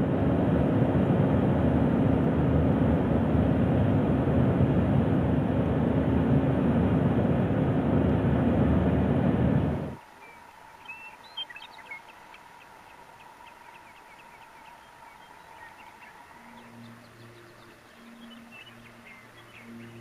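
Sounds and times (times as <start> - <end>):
car road and engine noise: 0.0 - 10.8.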